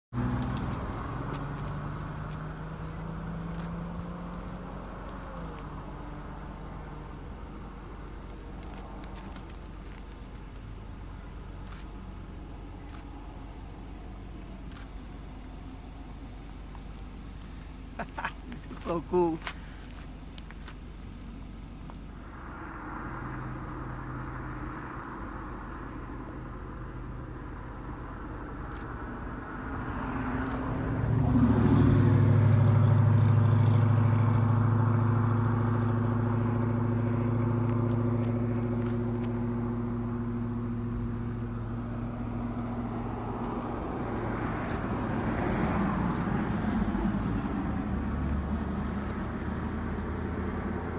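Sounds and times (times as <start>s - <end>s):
vehicle engine humming: 0.0s - 50.9s.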